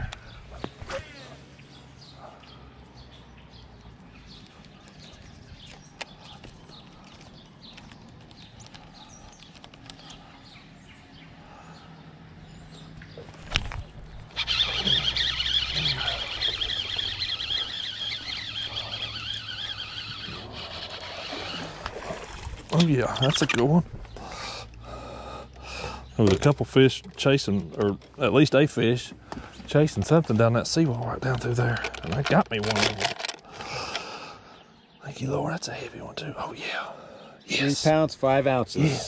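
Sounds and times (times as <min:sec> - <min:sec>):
faint bird chirps: 0:14.3 - 0:21.7.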